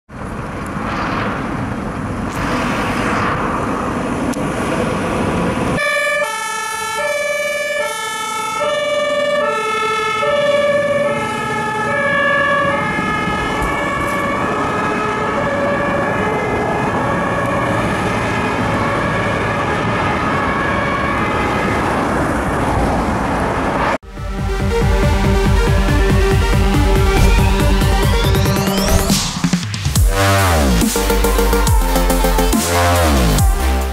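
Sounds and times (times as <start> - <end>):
engine and road noise: 0.1 - 33.9
two-tone siren: 5.8 - 21.9.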